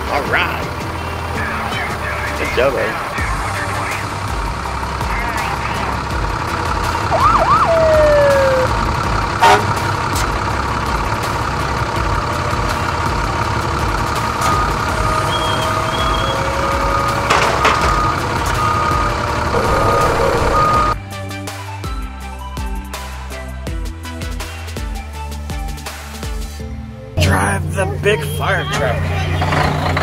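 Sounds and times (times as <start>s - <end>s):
held whining tones: 14.1s - 21.0s.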